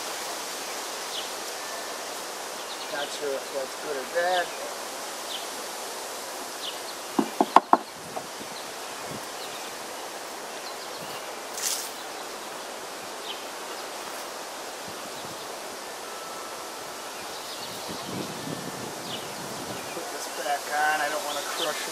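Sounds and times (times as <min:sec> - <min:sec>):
honey bees humming: 0:00.0 - 0:21.9
metal tool knocking on wooden frames: 0:07.2 - 0:08.3
short scraping hiss: 0:11.5 - 0:12.1.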